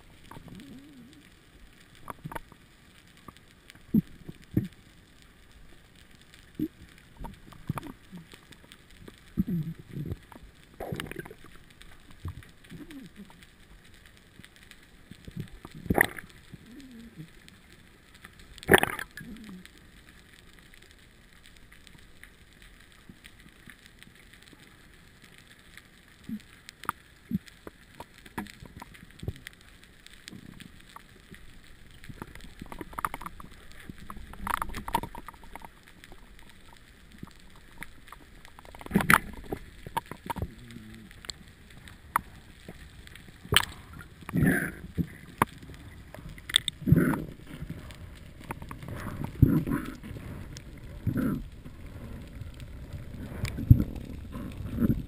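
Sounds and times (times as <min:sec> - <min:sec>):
faint steady hiss: 0:00.0 - 0:55.0
underwater gurgling and knocking: 0:09.0 - 0:13.4, 0:15.3 - 0:17.4, 0:18.6 - 0:19.4, 0:31.9 - 0:55.0.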